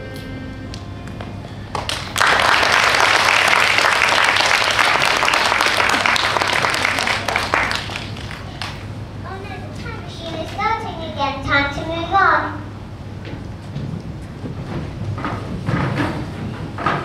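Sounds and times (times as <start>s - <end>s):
audience applause: 1.7s - 8.9s.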